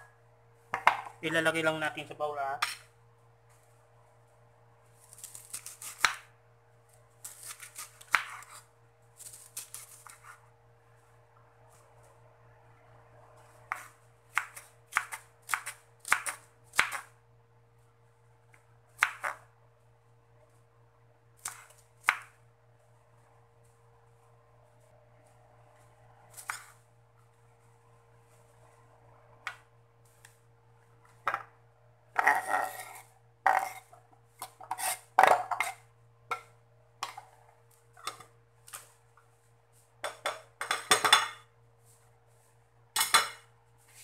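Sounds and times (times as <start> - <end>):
knife slicing cabbage: 5.0 - 6.3, 7.2 - 10.4, 13.6 - 17.1, 21.4 - 22.3, 26.3 - 26.8.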